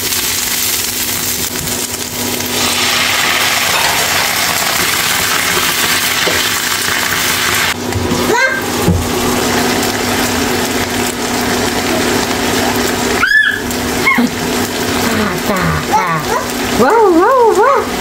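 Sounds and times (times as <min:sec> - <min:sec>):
toddler warbling call: 0:08.3 - 0:08.7, 0:13.2 - 0:14.4, 0:15.4 - 0:17.9
toddler crying: 0:13.2 - 0:14.3, 0:15.2 - 0:16.5.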